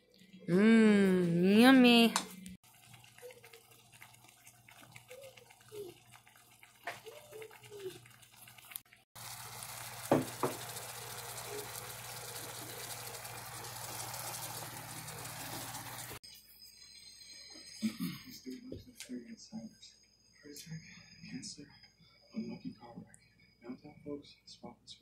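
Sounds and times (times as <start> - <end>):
chicken sizzling in a frying pan: 2.6 - 16.2.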